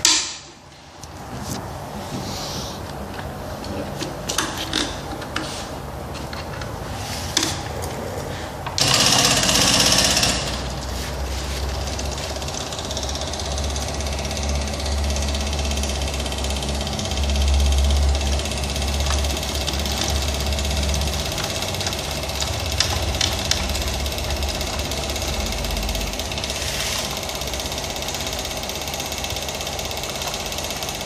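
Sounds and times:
pump humming and rattling: 0.0 - 31.0
electric pump hiss: 6.8 - 31.0.

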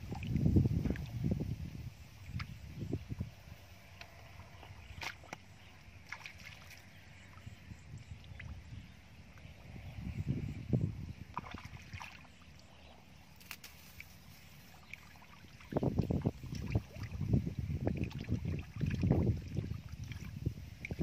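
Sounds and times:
splashing in shallow water: 4.1 - 8.8, 11.2 - 21.0.

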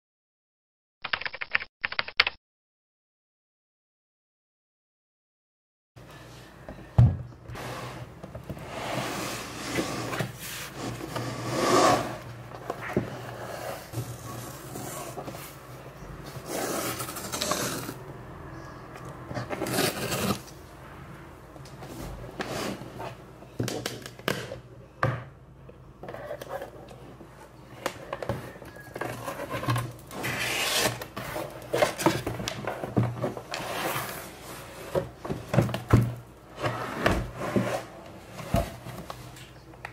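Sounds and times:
cardboard rubbing and scraping: 7.6 - 12.2, 16.3 - 18.0, 29.1 - 35.1, 36.5 - 38.9
box sliding against cardboard: 7.6 - 12.3, 36.5 - 39.0.

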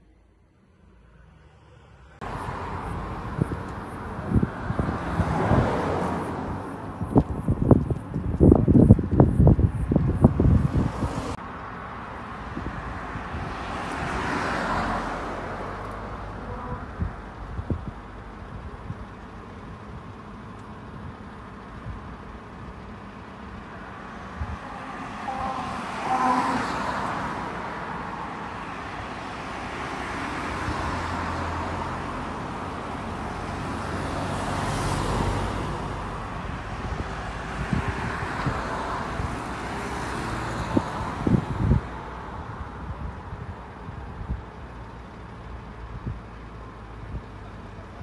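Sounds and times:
vehicles passing: 0.0 - 48.0.

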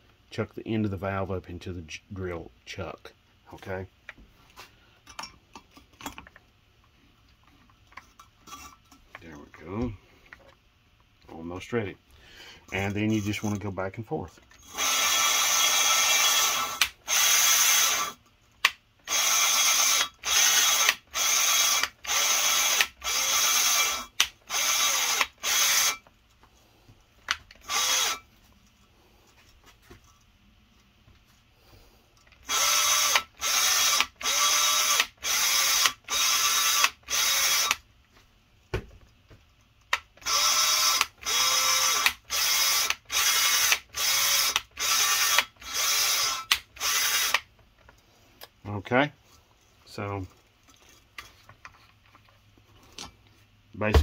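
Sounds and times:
electric drill grinding valve: 14.6 - 18.2, 19.0 - 26.1, 27.6 - 28.2, 32.4 - 37.8, 40.2 - 47.5.

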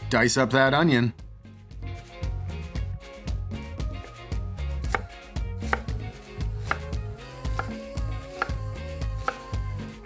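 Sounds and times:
knife chopping on wooden board: 4.8 - 6.0, 6.6 - 8.6, 9.2 - 9.5.

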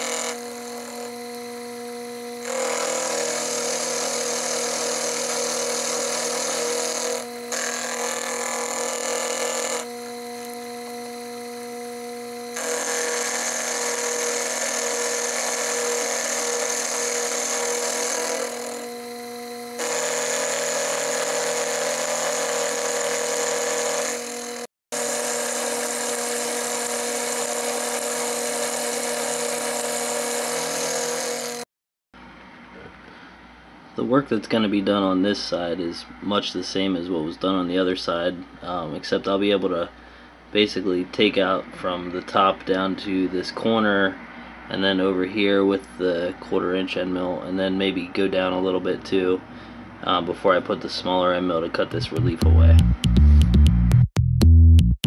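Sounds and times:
end mill cutting steel: 0.0 - 31.6
mill spindle motor running: 0.0 - 31.6.

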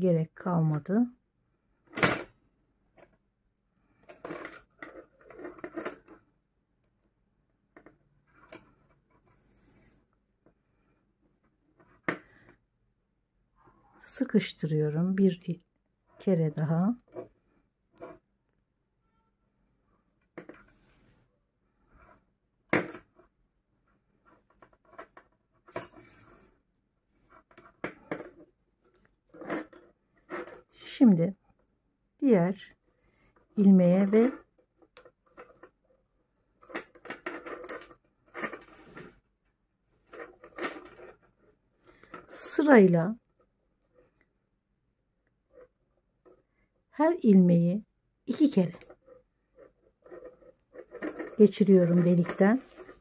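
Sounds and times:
fabric rustling: 51.4 - 53.0.

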